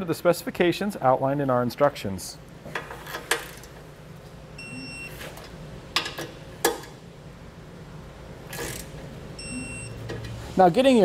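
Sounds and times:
steady low hum: 0:00.0 - 0:11.0
short electronic beep: 0:09.4 - 0:10.0.

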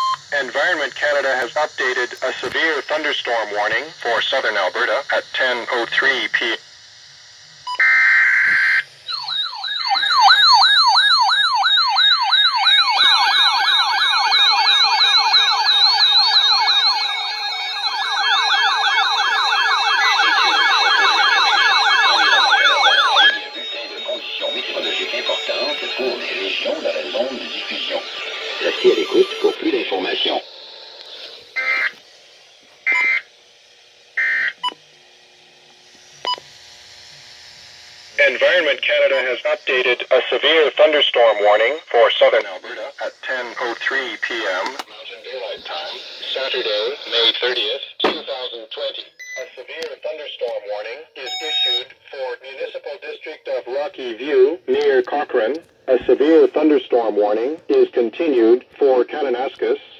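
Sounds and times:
yelping siren alarm: 0:00.0 - 0:00.3, 0:07.7 - 0:33.3, 0:34.1 - 0:34.8, 0:39.7 - 0:44.8, 0:51.2 - 0:52.0
buzzy digital alert tones: 0:07.7 - 0:32.0, 0:32.8 - 0:33.3, 0:38.2 - 0:48.4, 0:51.2 - 0:58.3
faster second siren: 0:07.7 - 0:33.3, 0:34.1 - 0:34.8, 0:39.7 - 0:44.6
digital alert tones: 0:20.1 - 0:30.4, 0:51.2 - 0:51.9.

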